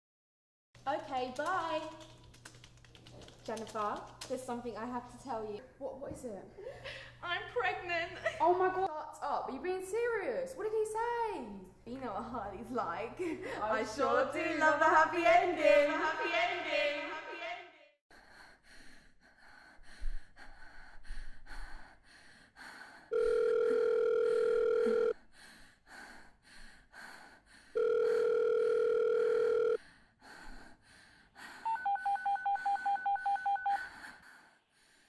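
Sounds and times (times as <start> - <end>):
telephone line tone: 23.1 - 25.1, 27.8 - 29.8, 31.7 - 33.9
phone keypad beeps: 31.7 - 33.8.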